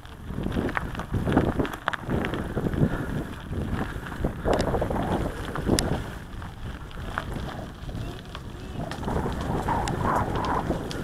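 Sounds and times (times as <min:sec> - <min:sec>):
bike rattles: 0:00.0 - 0:11.0
tyres rolling on gravel: 0:00.0 - 0:11.0
wind buffeting microphone: 0:00.0 - 0:11.0.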